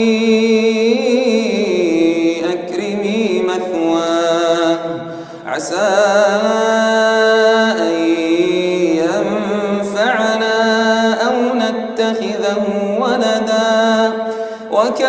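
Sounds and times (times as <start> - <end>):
man chanting recitation: 0.0 - 15.0.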